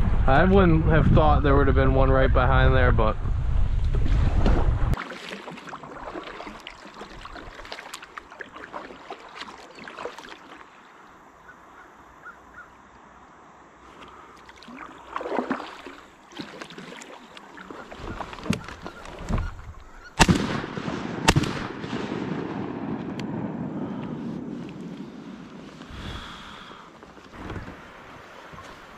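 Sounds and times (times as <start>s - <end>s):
paddling in water: 3.6s - 20.3s, 23.8s - 28.9s
ducks calling: 17.0s - 20.2s
shotgun shots: 20.2s - 23.6s.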